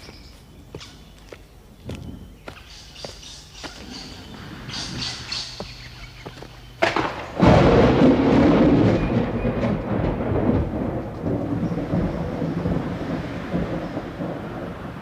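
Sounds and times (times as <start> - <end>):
long thunder rumble: 6.8 - 15.0
thunder crack: 6.8 - 15.0.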